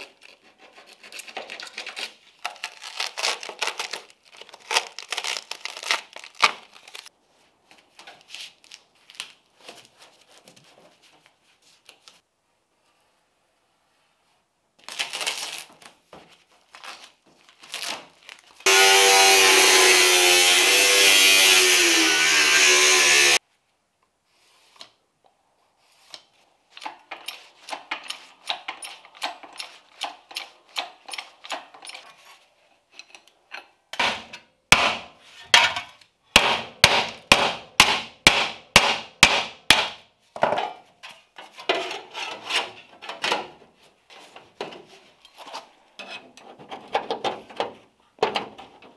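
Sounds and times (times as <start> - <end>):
power tool running: 18.7 - 23.4.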